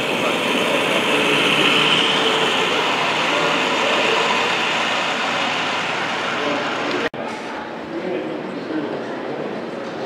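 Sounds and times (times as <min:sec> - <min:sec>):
locomotive motor: 0:00.0 - 0:07.1
model train rumbling on rails: 0:00.0 - 0:07.1.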